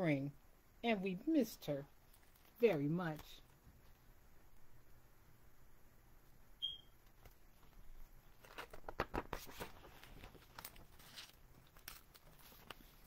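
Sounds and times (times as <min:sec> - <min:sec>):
book page rustling: 0:07.1 - 0:13.0.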